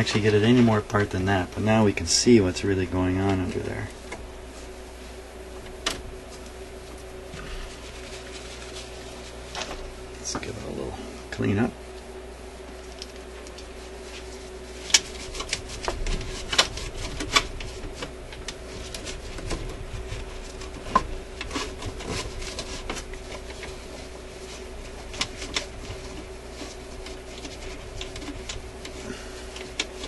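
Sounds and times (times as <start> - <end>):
tissue rustling over metal: 6.2 - 10.0, 12.6 - 30.0.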